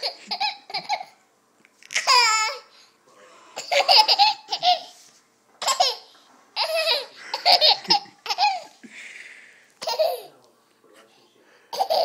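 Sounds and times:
toddler giggling: 0:03.6 - 0:05.0, 0:05.6 - 0:08.8, 0:09.8 - 0:10.3, 0:11.7 - 0:12.0.

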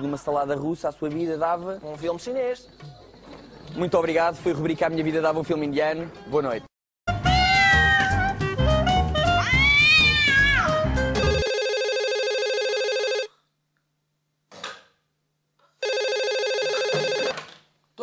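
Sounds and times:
music jingle: 0:11.0 - 0:12.1
telephone ringing: 0:11.2 - 0:13.4, 0:15.8 - 0:17.5.

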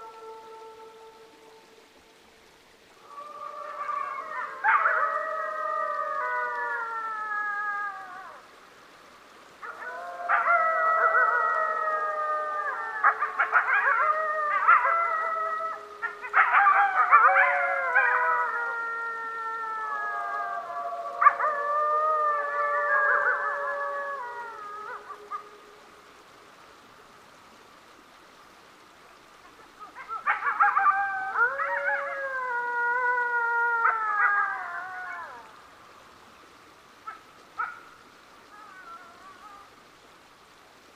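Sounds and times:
faint steady hiss: 0:00.0 - 0:40.9
wolves howling in chorus: 0:03.0 - 0:08.5, 0:09.6 - 0:25.7, 0:30.0 - 0:35.5
wolves yipping: 0:16.0 - 0:18.4, 0:30.0 - 0:32.2, 0:37.0 - 0:37.8.

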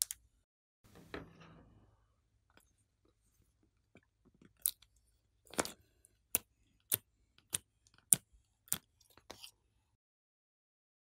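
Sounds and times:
sticky clay clicks and pops: 0:05.4 - 0:09.0.

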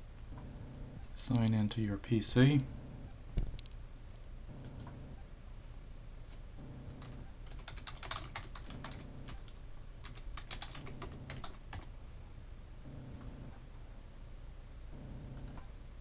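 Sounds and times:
computer keyboard typing: 0:06.9 - 0:11.9, 0:15.3 - 0:15.7.

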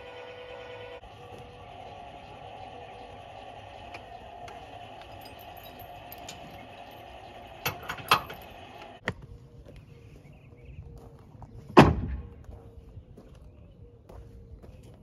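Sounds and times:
steady hum: 0:00.0 - 0:10.8
sharp metal clicks and clanks: 0:03.8 - 0:09.0.

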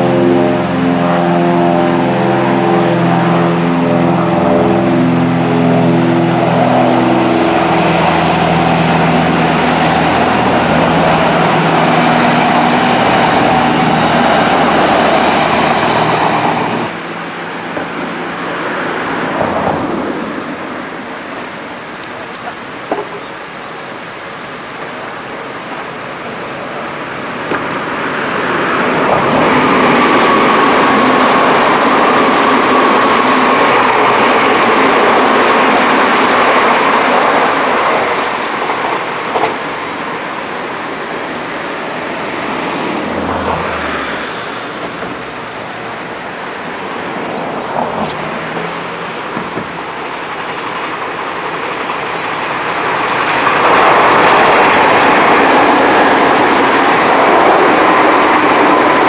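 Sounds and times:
electric train passing: 0:00.0 - 0:59.0
wheels rushing on rails: 0:00.0 - 0:59.0
train motors whining: 0:06.2 - 0:17.0.

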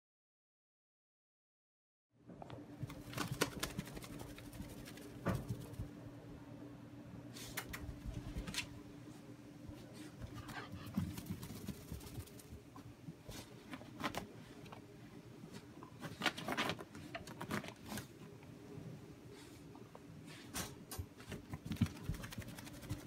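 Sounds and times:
dog scrabbling on carpet: 0:20.6 - 0:23.0.

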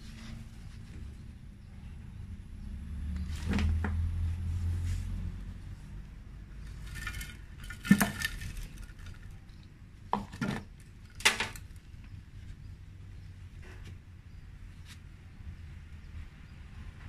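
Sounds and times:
plastic flowerpot knocking: 0:10.1 - 0:10.7.

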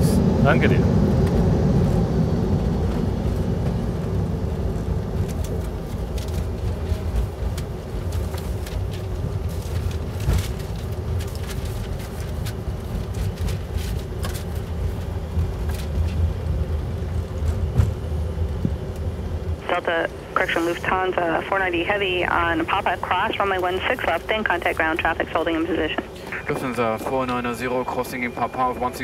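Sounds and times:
jet engines and wheels rumbling: 0:00.0 - 0:29.0.

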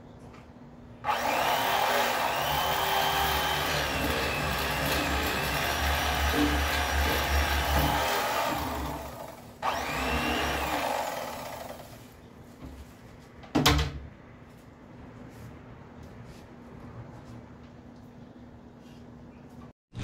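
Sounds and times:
electric fillet knife motor buzz: 0:01.1 - 0:11.9.

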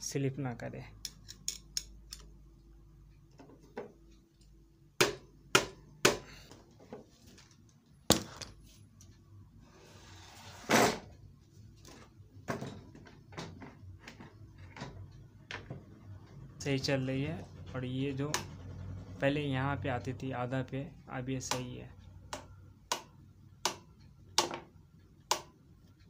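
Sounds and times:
hammer tapping: 0:05.0 - 0:06.4, 0:18.3 - 0:18.6, 0:22.3 - 0:25.6.

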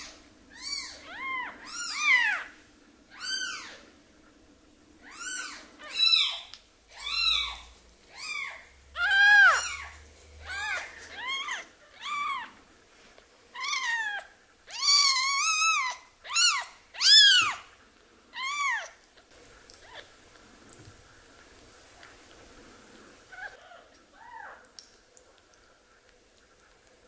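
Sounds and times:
newborn kitten mewing: 0:05.0 - 0:12.5, 0:13.6 - 0:17.6.

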